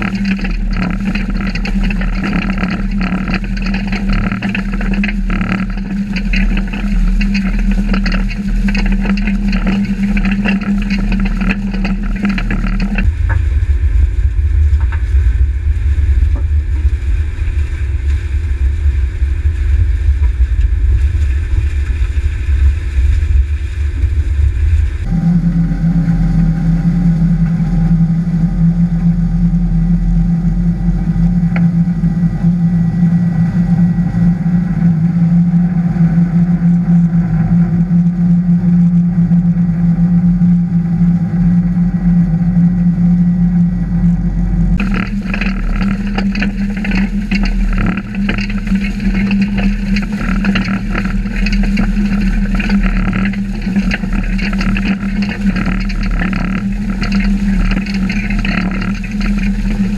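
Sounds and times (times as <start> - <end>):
crackle of stalks and soil: 0.0 - 27.9, 44.1 - 59.9
heavy low rumble: 0.0 - 59.9
steady mechanical hum: 0.0 - 59.9.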